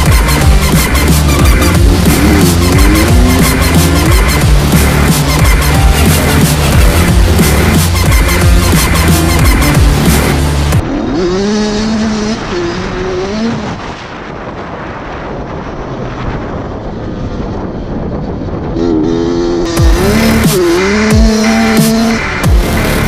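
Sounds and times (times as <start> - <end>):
electronic music with heavy beat: 0.0 - 10.8, 19.7 - 23.0
dirt bike engine revving: 0.0 - 13.8, 17.3 - 23.0.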